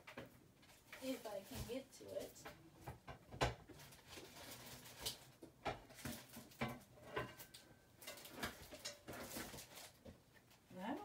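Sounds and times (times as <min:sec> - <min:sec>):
objects knocking on a desk: 0:02.8 - 0:03.7.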